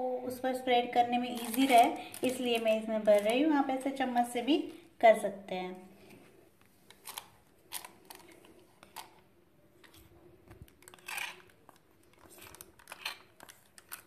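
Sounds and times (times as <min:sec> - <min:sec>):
plastic bag crinkling: 0:01.2 - 0:03.8, 0:06.8 - 0:09.2, 0:09.8 - 0:14.0
spoon scraping bowl: 0:10.8 - 0:13.6.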